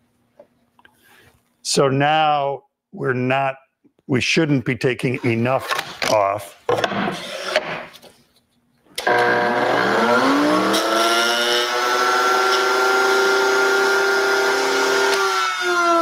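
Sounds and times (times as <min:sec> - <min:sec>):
router motor whine: 0:09.0 - 0:16.0.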